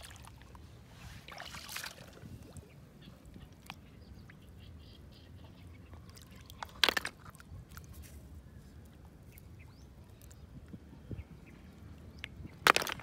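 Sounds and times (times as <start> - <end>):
snail shells clattering into bucket: 12.6 - 13.0.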